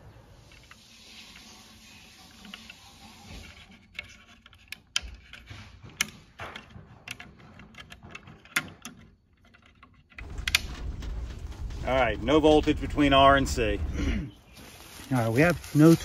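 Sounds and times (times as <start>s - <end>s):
faint steady hiss: 0.0s - 3.8s.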